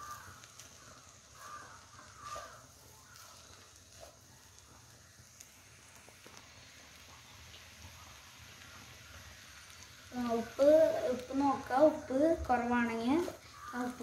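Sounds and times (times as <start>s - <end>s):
crow cawing: 0.0s - 3.4s, 13.4s - 14.0s.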